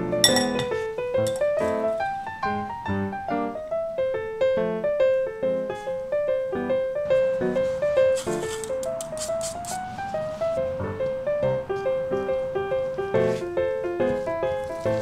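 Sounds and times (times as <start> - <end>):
light piano-like tune: 0.0 - 15.0.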